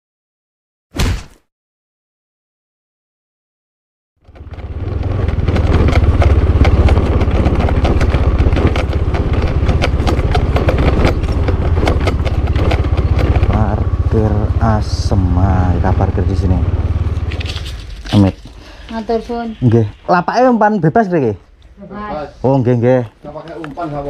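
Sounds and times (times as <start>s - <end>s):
motorcycle engine running: 4.2s - 19.9s.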